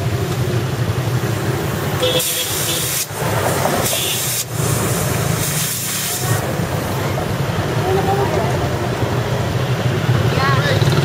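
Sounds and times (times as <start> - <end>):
air hissing from tyre valve: 1.2 - 7.0.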